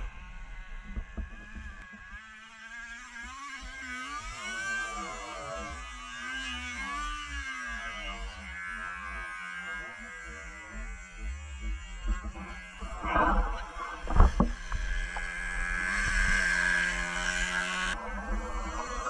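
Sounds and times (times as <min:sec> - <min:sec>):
small engine revving: 0:00.0 - 0:19.0
high steady whine: 0:10.7 - 0:19.0.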